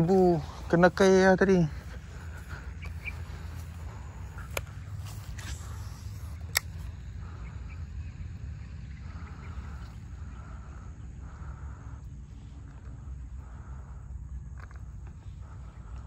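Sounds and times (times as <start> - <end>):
low steady rumble: 0.0 - 16.0
sharp click: 6.4 - 6.9.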